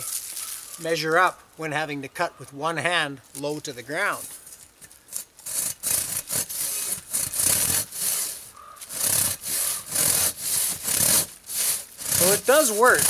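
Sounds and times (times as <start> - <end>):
saw rasping through log: 5.4 - 13.0.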